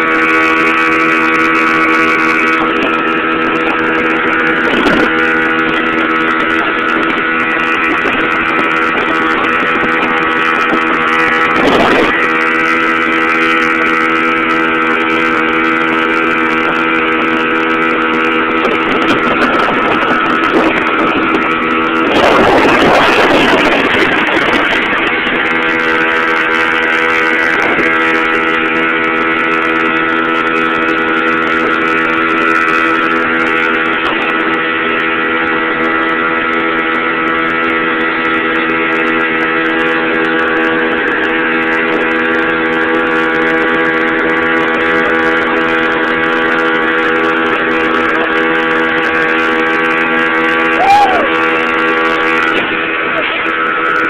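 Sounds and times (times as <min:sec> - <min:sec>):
outboard motor running: 0:00.0 - 0:54.0
water rushing off boat hull: 0:00.0 - 0:54.0.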